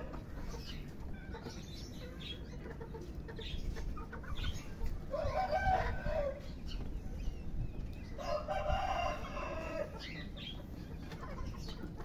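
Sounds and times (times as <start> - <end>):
chickens clucking: 0.0 - 12.0
rooster crowing: 8.2 - 9.9.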